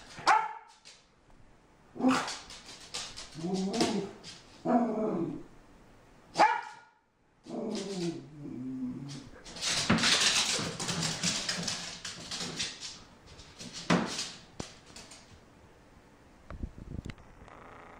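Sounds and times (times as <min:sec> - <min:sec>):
puppy barking: 0:00.2 - 0:00.8, 0:06.4 - 0:07.0
puppy growling and whining: 0:03.4 - 0:05.5, 0:07.5 - 0:09.4.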